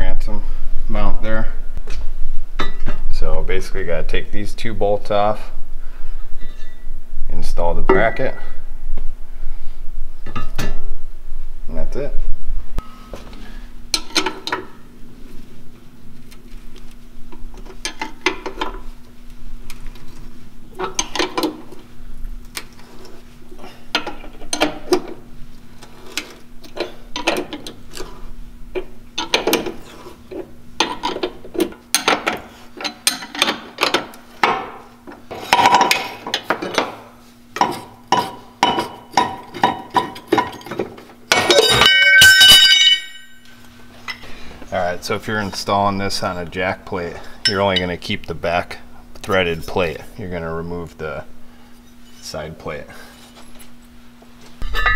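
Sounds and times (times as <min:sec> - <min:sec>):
ringing metal clatter: 0:41.3 - 0:43.5, 0:54.6 - 0:54.9.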